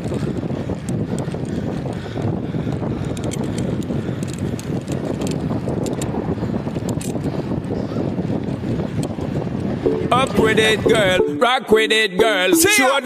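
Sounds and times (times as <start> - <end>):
wind buffeting microphone: 0.0 - 9.9.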